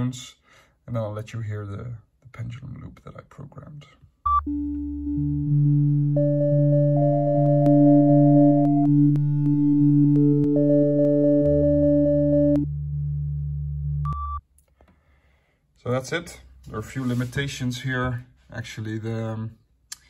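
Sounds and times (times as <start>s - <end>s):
overlapping pure sine tones: 4.3s - 14.4s.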